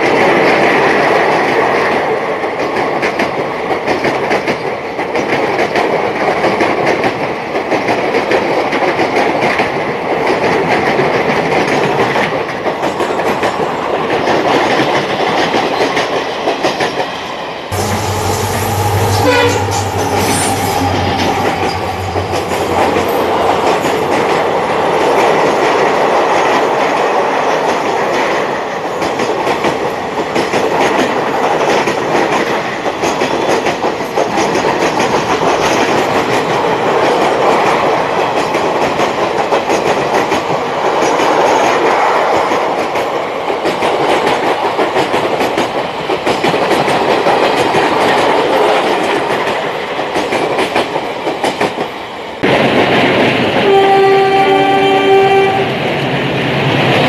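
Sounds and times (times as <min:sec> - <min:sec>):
train wheels clattering over rails: 0:00.0 - 0:57.0
train horn: 0:17.7 - 0:23.5, 0:53.6 - 0:55.8.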